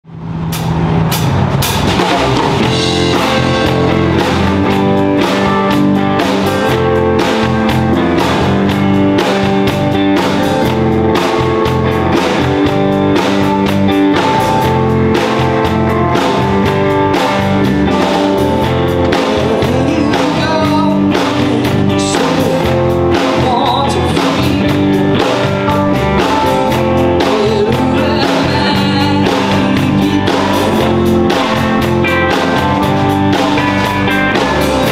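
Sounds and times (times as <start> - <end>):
rock music: 0.0 - 34.9
person singing: 19.0 - 25.3, 26.2 - 31.6.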